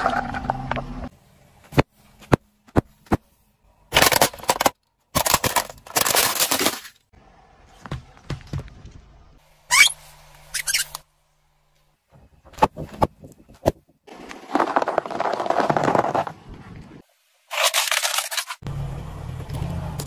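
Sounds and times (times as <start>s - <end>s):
car tyre crushing plastic cups: 3.9s - 7.1s, 12.6s - 16.4s.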